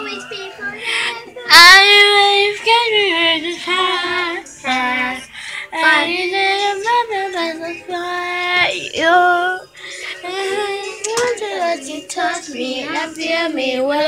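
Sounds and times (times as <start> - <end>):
girl singing karaoke-style: 0.0 - 14.0.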